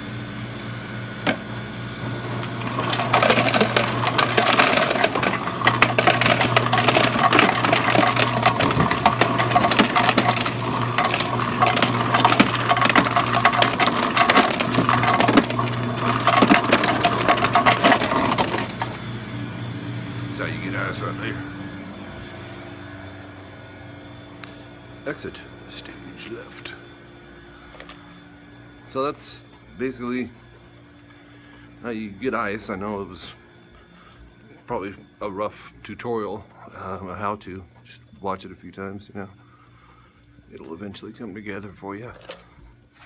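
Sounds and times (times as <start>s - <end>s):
steady low hum: 0.0s - 43.0s
ice cubes clattering into bucket: 2.6s - 18.9s.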